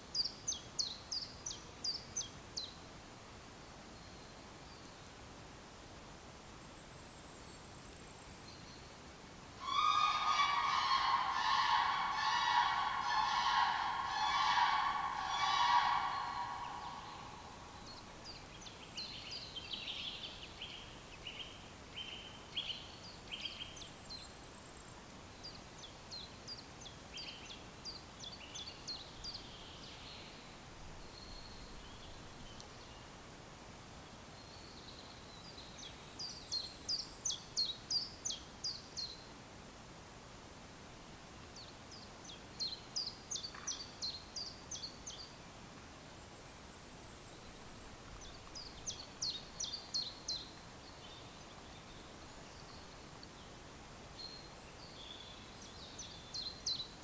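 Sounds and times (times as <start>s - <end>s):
songbirds singing: 0.0s - 2.8s, 9.6s - 33.2s, 34.2s - 39.3s, 41.6s - 45.4s, 46.1s - 57.0s
faint steady hiss: 0.0s - 57.0s
lower bird call: 9.6s - 18.1s.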